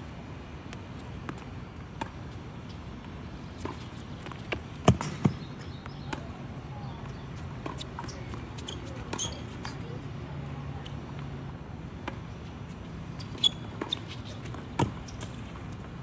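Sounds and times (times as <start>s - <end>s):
tennis balls being struck: 3.6s - 9.8s.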